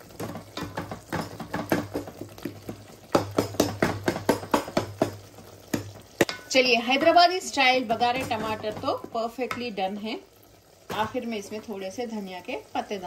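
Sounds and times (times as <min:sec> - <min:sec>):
spoon knocking against metal pot: 0:00.2 - 0:07.3, 0:07.9 - 0:09.7
wooden spoon mashing tomatoes: 0:00.3 - 0:06.4.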